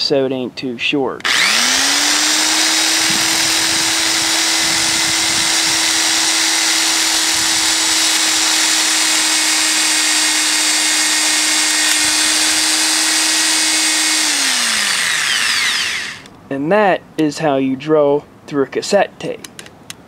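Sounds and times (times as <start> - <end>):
electric drill boring through plastic: 1.2 - 16.3.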